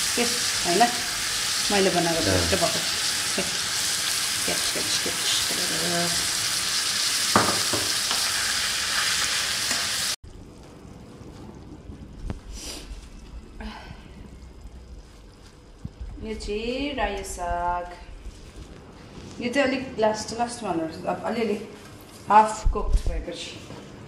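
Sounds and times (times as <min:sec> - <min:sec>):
meat sizzling in oil: 0:00.0 - 0:10.2.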